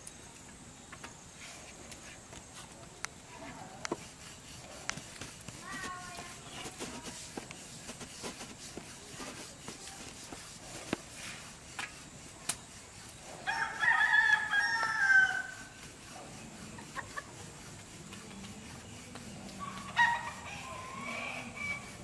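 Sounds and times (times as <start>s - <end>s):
rooster crowing: 13.4s - 15.7s, 19.6s - 22.0s.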